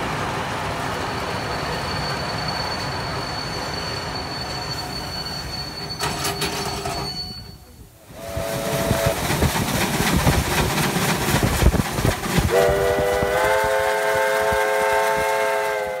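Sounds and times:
steam locomotive passing: 0.0s - 16.0s
long chime whistle blast: 1.2s - 7.8s
short train whistle toot: 1.5s - 9.2s, 12.5s - 16.0s.

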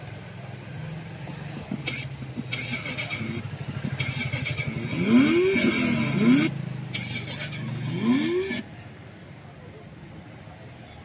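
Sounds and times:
engine throbbing: 0.9s - 8.7s
high-pitched squeal: 4.0s - 8.7s
rising and falling pitch sounds: 4.9s - 6.5s, 7.9s - 8.6s.

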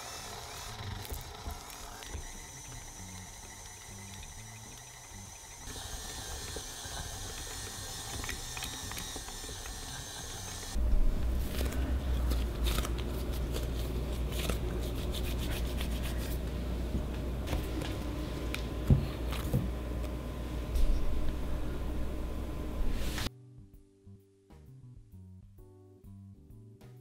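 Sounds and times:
stand mixer motor whining: 0.0s - 10.8s
hands kneading dough: 11.3s - 19.8s.

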